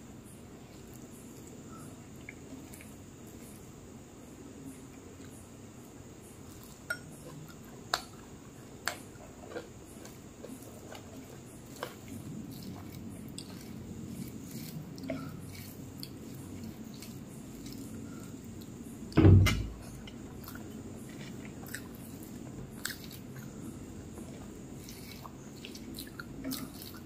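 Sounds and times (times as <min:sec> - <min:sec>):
wet squishing of food: 0:20.0 - 0:27.0.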